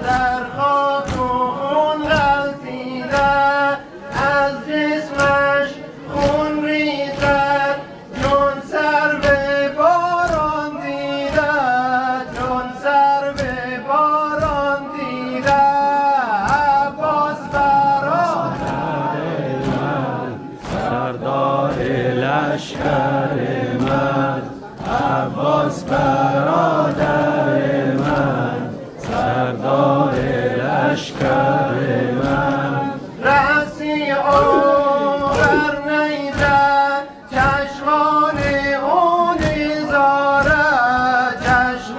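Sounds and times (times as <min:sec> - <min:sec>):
crowd of men singing: 0:00.0 - 0:41.9
man chanting a lament: 0:29.2 - 0:41.9.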